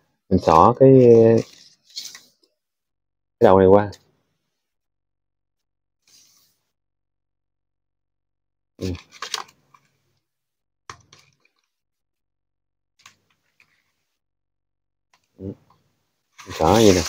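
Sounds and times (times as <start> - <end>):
leaf strips rustling and crackling: 16.4 - 17.0.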